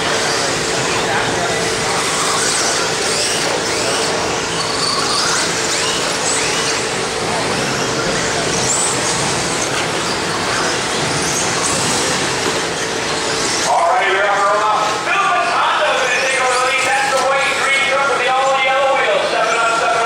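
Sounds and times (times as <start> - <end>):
electric toy car motors whining: 0.0 - 13.8.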